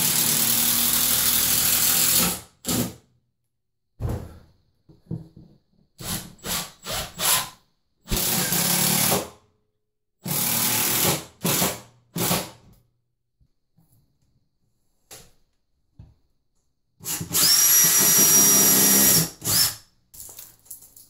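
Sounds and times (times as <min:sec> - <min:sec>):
cordless drill driving screws: 0:17.0 - 0:19.8.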